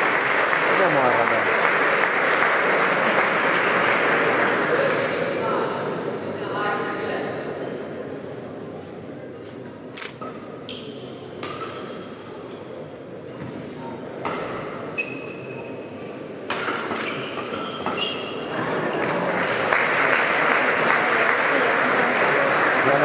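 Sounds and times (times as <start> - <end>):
crowd applause: 0.0 - 5.1, 18.5 - 23.0
rackets striking shuttlecock: 11.4 - 12.0
shoe squeaks on court floor: 15.0 - 15.9, 17.0 - 18.4.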